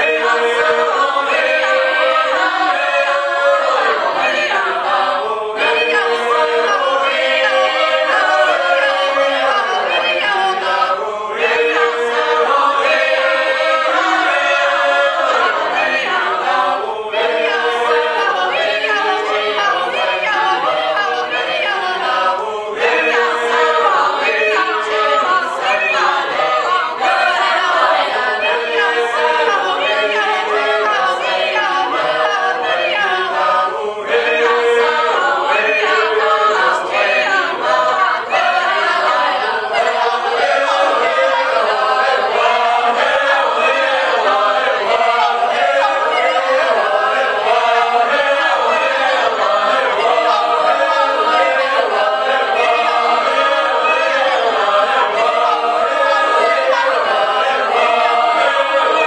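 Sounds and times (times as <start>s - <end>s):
a cappella choir singing: 0.0s - 59.0s.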